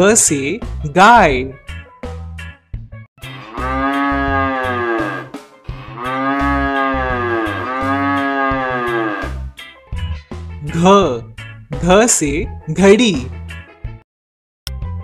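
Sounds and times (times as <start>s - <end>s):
cow mooing: 3.3s - 9.5s.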